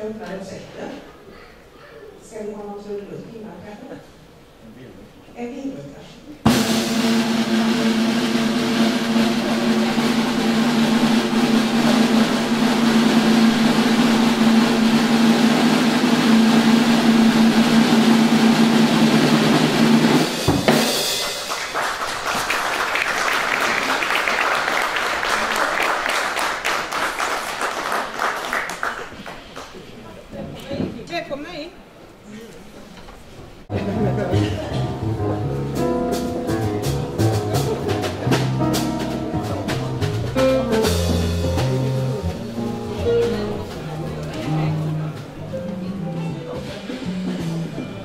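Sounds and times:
drum roll on drum kit: 0:06.4 - 0:28.3, 0:33.7 - 0:48.0
cymbal crash: 0:06.5 - 0:21.5
applause: 0:21.2 - 0:30.0.

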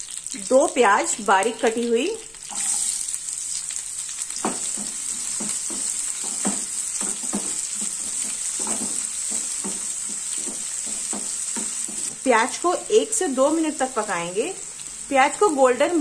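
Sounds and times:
onions sizzling in oil: 0:00.0 - 0:16.0
spatula scraping pan: 0:04.4 - 0:12.1.

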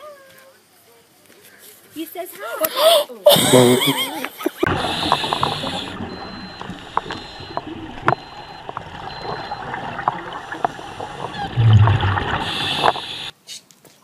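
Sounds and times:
bubbling exhaled air underwater: 0:04.6 - 0:13.3
regulator inhalation hiss: 0:12.3 - 0:13.3.

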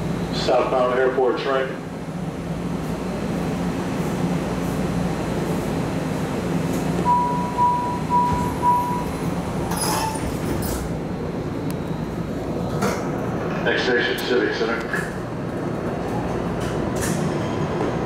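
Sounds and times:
train rumble and motor hum: 0:00.0 - 0:18.0
short high beeps: 0:07.0 - 0:09.2.

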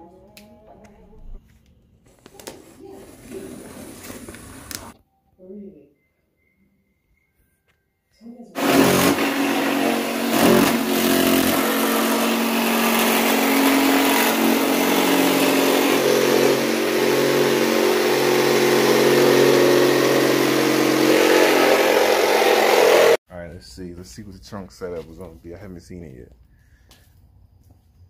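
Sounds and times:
jigsaw cutting wood: 0:03.5 - 0:05.0, 0:08.6 - 0:23.2.

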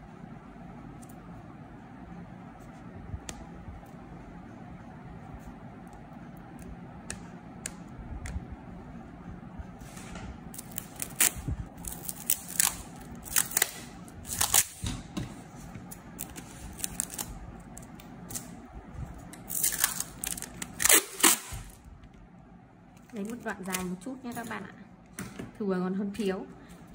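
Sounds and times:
packing tape ripping off roll: 0:10.5 - 0:14.8, 0:16.2 - 0:17.3, 0:19.5 - 0:21.8.

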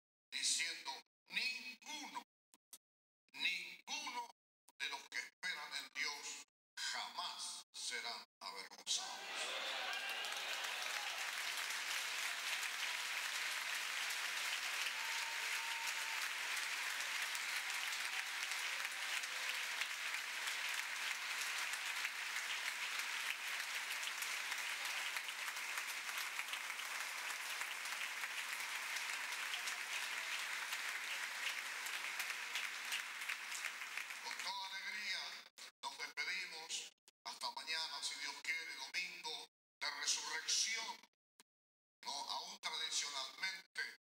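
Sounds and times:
congregation applauding: 0:09.0 - 0:34.5.

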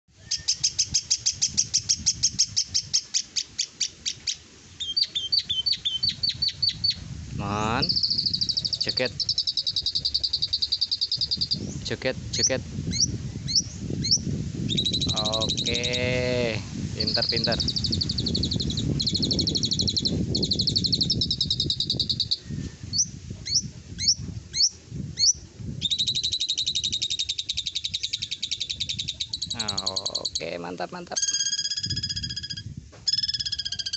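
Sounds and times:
bird rattling trills: 0:00.3 - 0:16.0, 0:17.0 - 0:33.9
starling calling high notes: 0:07.6 - 0:11.8, 0:26.0 - 0:33.9.

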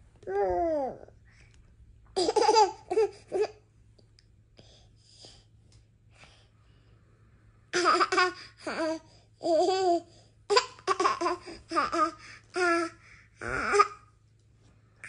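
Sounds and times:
baby laughing: 0:02.2 - 0:03.5, 0:07.8 - 0:12.9.

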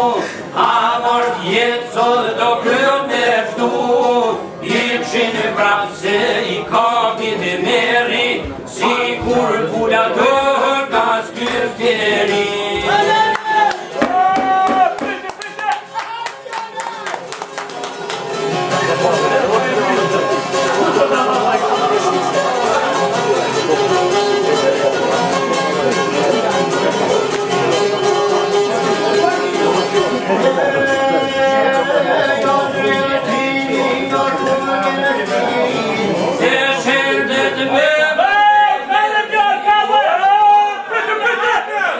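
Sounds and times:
men singing folk song: 0:00.0 - 0:14.2, 0:18.9 - 0:24.7, 0:30.3 - 0:40.6
plucked lutes: 0:17.6 - 0:36.9.

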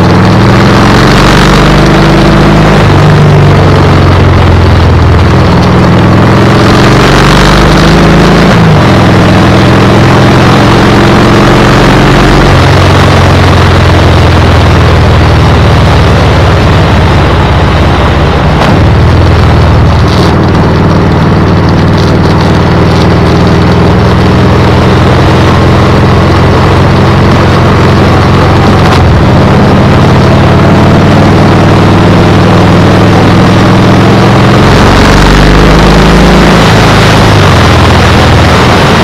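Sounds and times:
motorcycle engine running: 0:00.0 - 0:39.0
wind noise on microphone: 0:14.3 - 0:31.6.

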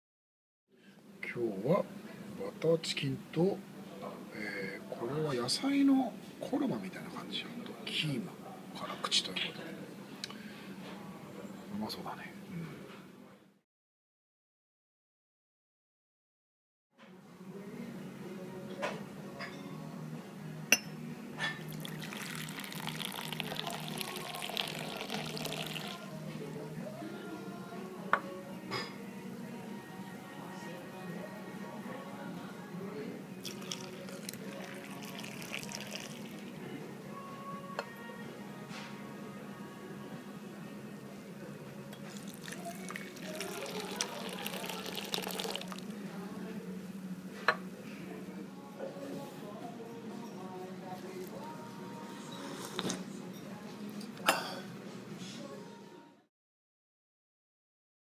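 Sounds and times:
tea pouring and splashing: 0:21.6 - 0:26.1, 0:33.4 - 0:36.5, 0:42.0 - 0:45.9.

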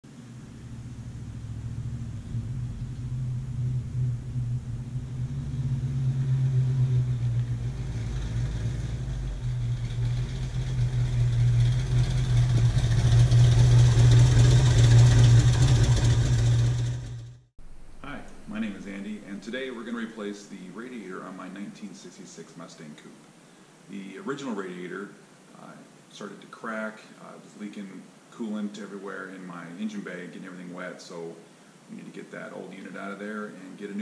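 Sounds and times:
car engine approaching: 0:00.0 - 0:20.2.

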